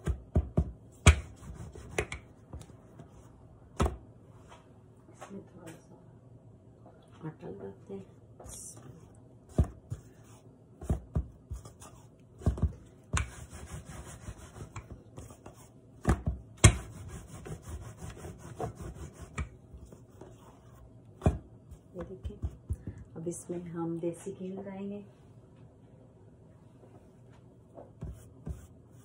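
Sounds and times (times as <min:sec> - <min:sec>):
rolling pin knocking on board: 0:00.0 - 0:02.7, 0:21.2 - 0:23.0
rolling pin rubbing on dough: 0:01.0 - 0:03.3, 0:09.5 - 0:20.8.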